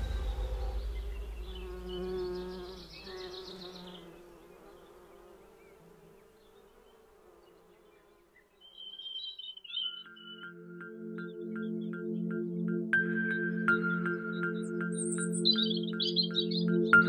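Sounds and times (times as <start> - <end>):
insect buzzing: 0.0 - 9.8
high chirping tones: 9.3 - 10.8, 14.2 - 16.9.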